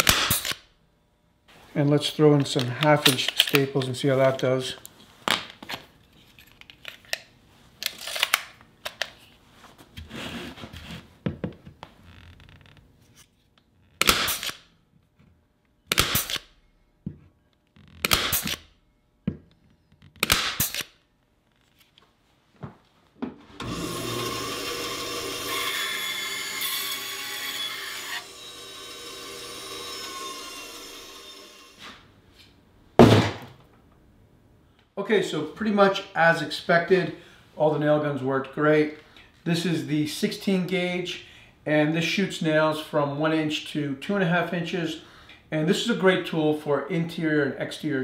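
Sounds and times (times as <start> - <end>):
pneumatic stapler shots into wood: 0.0 - 0.6, 14.0 - 14.6, 15.9 - 16.5, 18.0 - 18.7, 20.2 - 20.9
band saw cutting wood: 23.6 - 31.9.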